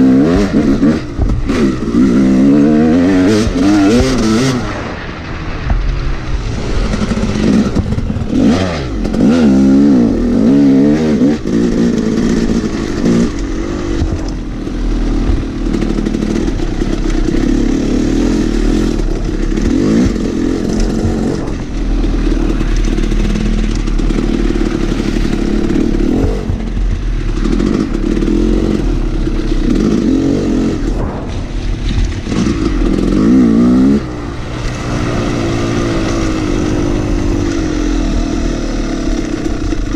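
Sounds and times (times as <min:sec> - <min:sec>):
bike knocking and rattling: 0:00.0 - 0:04.8, 0:05.6 - 0:39.9
dirt bike engine revving: 0:00.0 - 0:39.9.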